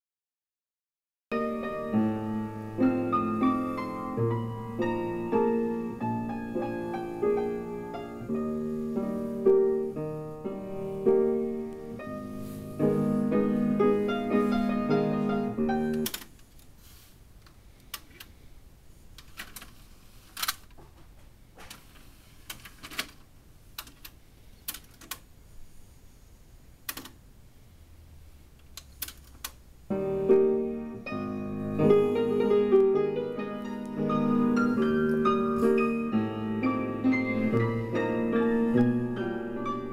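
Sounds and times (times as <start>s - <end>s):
piano music: 1.3s - 16.2s, 29.9s - 39.9s.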